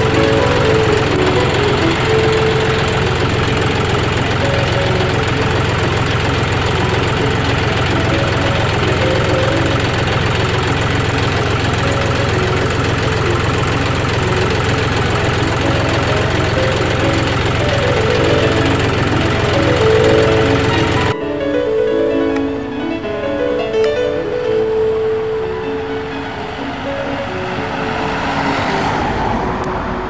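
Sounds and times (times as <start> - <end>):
tractor diesel engine running: 0.0 - 30.0.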